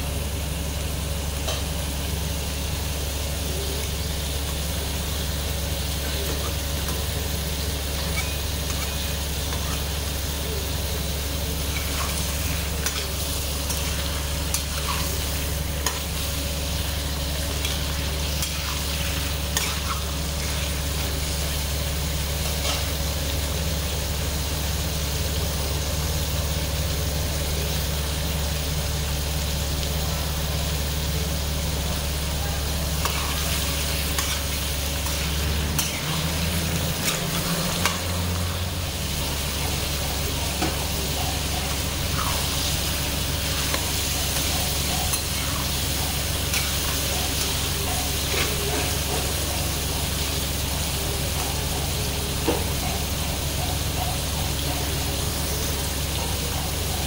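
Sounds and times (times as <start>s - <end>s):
chicken sizzling in oil: 0.0s - 57.0s
metal spatula scraping a wok: 7.9s - 10.0s, 11.6s - 23.0s, 33.0s - 38.5s.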